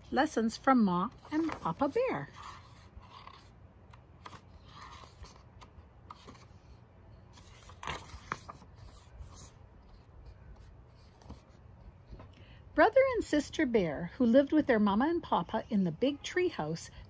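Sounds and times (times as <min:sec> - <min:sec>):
book pages turning and rustling: 0:01.1 - 0:12.3
crisp page crackle: 0:01.2 - 0:03.5, 0:07.3 - 0:09.5.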